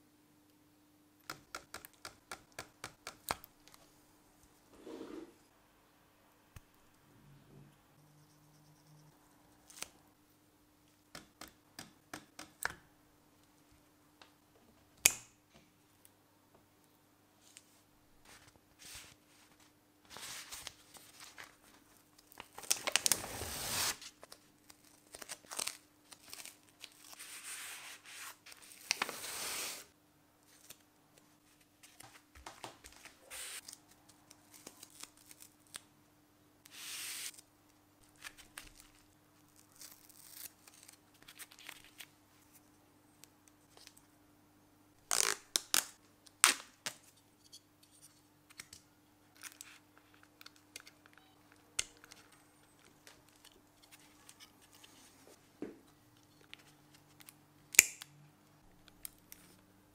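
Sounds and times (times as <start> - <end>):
tape tearing and peeling: 45.0 - 47.0.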